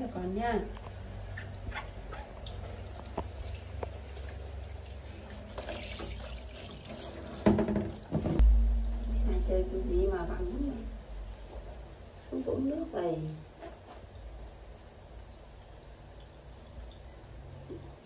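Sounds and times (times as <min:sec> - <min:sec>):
water drips: 0:00.0 - 0:18.0
short pitched sound: 0:08.4 - 0:11.0
low rumble: 0:08.4 - 0:11.8.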